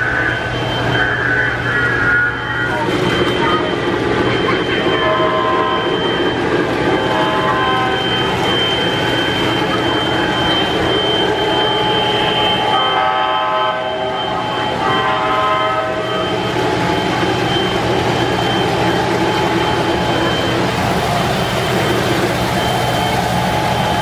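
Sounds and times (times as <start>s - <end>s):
model train running rumble: 0.0s - 24.0s
model train horn blasts: 4.8s - 6.2s, 6.9s - 8.2s, 11.2s - 16.3s.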